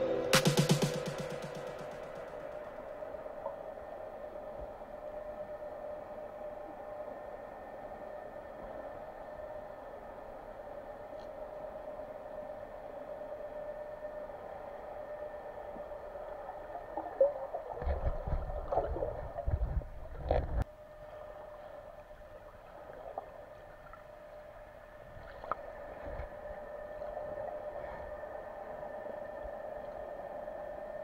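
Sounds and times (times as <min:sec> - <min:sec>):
steady underwater hum: 0:00.0 - 0:31.0
low rumbling and gurgling: 0:15.6 - 0:31.0.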